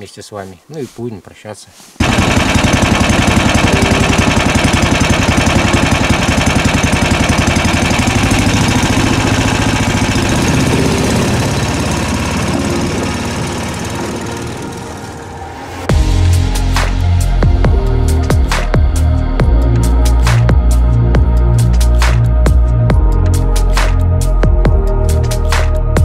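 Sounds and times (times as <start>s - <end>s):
small engine running: 2.0s - 17.2s.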